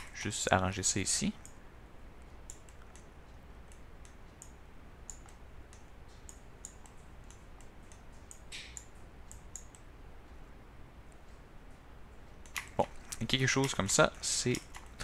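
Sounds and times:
mouse and keyboard clicks: 12.4s - 15.0s.

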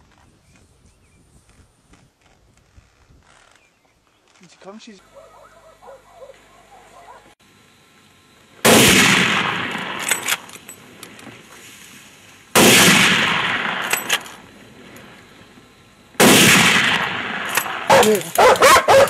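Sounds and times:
gunshots with long echo: 8.6s - 10.2s, 12.6s - 14.2s, 16.2s - 19.0s.

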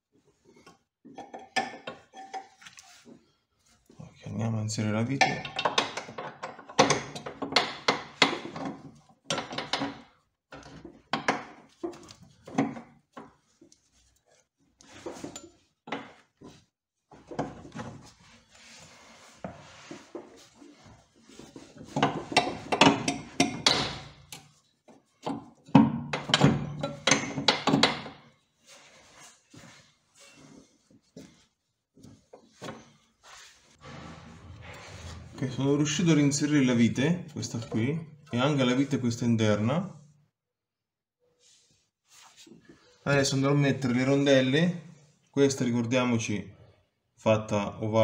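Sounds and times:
metal bolt clinking and knocking: 5.2s - 12.9s, 21.8s - 24.6s, 25.2s - 28.2s.

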